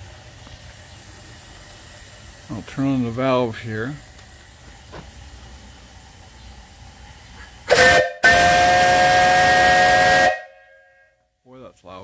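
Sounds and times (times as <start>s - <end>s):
steam whistle blowing a chord: 7.7s - 11.3s.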